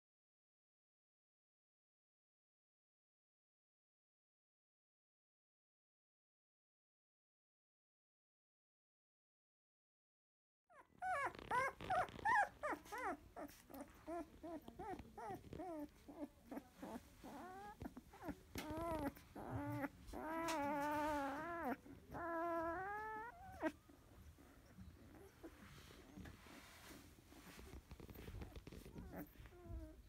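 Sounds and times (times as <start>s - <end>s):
puppies whimpering and squeaking: 10.7s - 30.0s.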